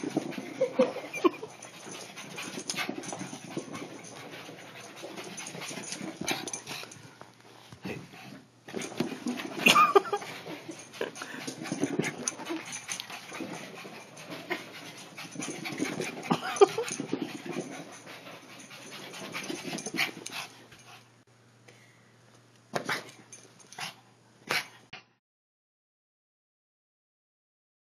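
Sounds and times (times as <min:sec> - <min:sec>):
dog panting and huffing: 0:00.0 - 0:21.2.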